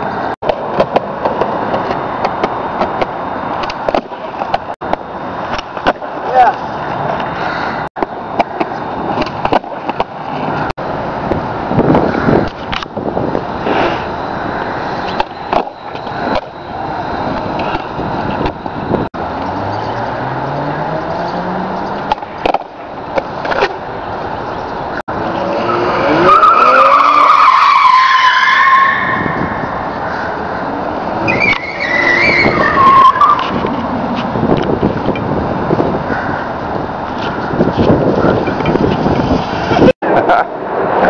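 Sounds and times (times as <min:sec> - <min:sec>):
skateboard wheels rolling on concrete: 0:00.0 - 0:41.0
car tyres squealing: 0:11.7 - 0:39.9.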